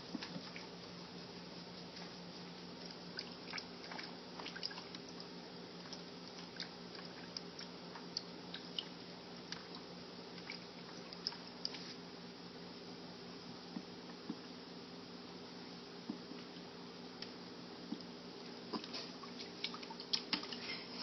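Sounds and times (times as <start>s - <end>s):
steady low hum: 0.0s - 21.0s
cat lapping water: 2.8s - 9.0s.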